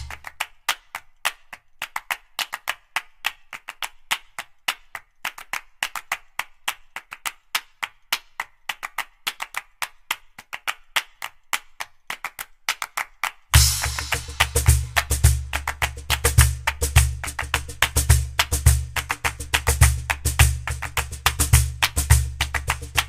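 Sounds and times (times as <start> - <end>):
rapid dry percussive clicks: 13.6 - 23.0.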